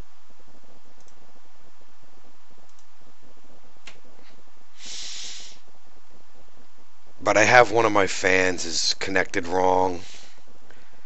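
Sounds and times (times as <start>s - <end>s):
computer mouse clicks: 1.0s - 1.2s, 2.7s - 2.9s
short hiss: 4.8s - 5.6s.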